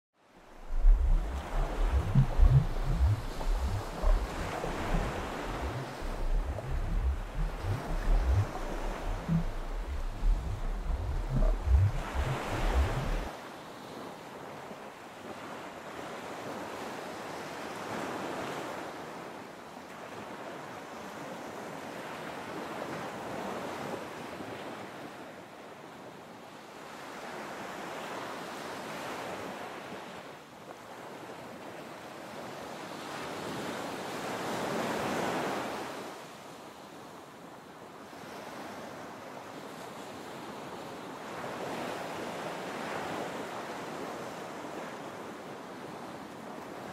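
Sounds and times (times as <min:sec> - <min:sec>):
low rumble: 0:00.6 - 0:13.3
ocean surf washing: 0:00.6 - 0:13.3.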